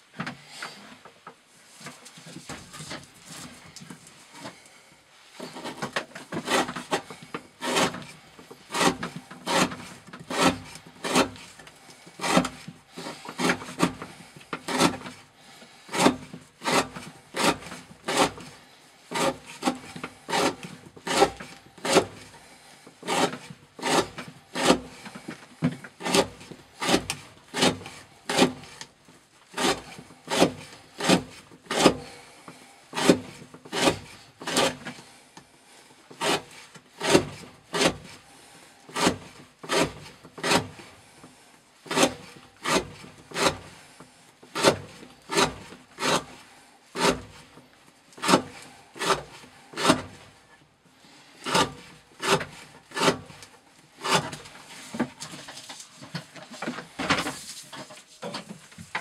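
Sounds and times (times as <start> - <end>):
knife slicing through rope: 15.9 - 22.3, 33.0 - 35.0, 51.4 - 58.2.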